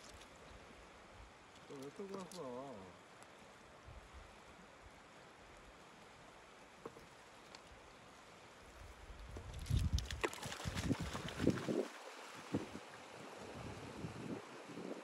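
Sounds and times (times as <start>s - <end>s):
wind buffeting microphone: 9.3s - 12.8s
river running over stones: 9.9s - 15.0s.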